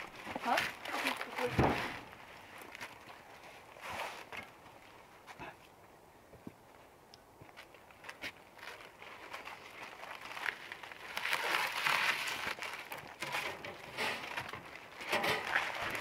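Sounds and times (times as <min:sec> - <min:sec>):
log scraping and knocking on metal: 0:13.2 - 0:16.0.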